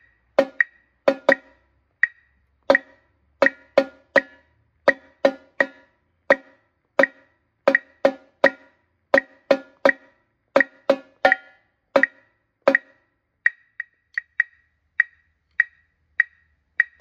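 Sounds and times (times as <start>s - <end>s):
tenor drum strokes: 0.4s - 1.6s, 2.7s - 12.9s
light thin clicks: 13.4s - 17.0s.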